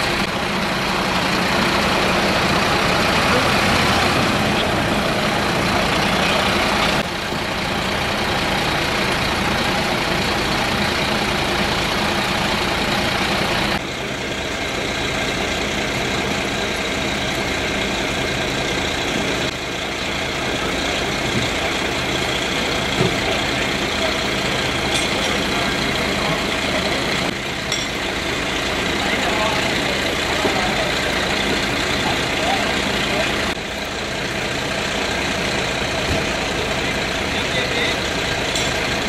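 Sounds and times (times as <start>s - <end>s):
heavy engines running: 0.0s - 39.0s.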